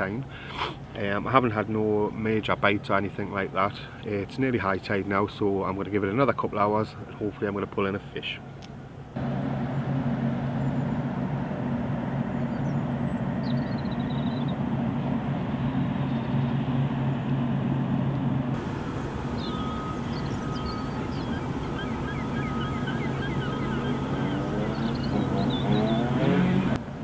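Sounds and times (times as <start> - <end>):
industrial machinery hum: 9.2 - 27.0
chirping bird calls: 18.6 - 26.8.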